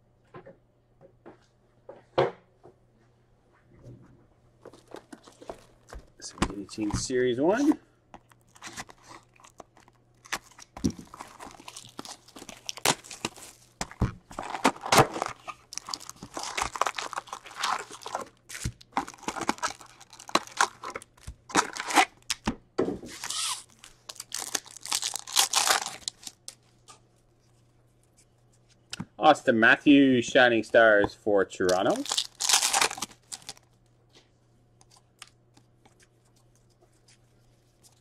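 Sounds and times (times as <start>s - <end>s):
foil wrappers tearing and crinkling: 8.3s - 22.4s, 23.2s - 26.6s, 31.7s - 33.7s.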